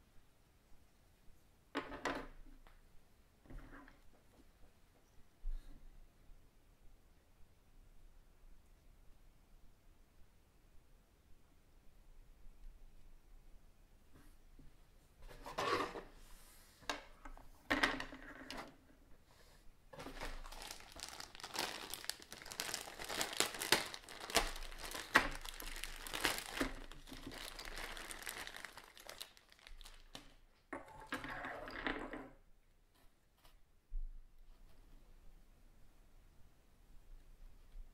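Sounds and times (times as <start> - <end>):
plastic bag crinkling: 20.0 - 30.6.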